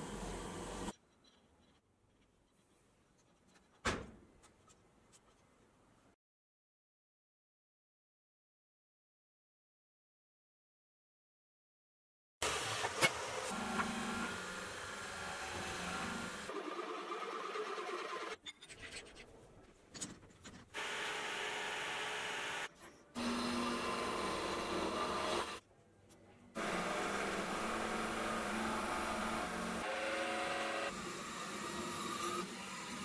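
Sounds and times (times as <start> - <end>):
milling machine whine: 26.6 - 32.2.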